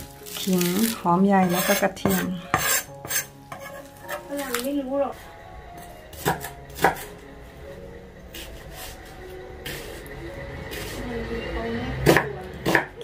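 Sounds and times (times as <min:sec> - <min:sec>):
knife cutting on cutting board: 0:01.4 - 0:04.2.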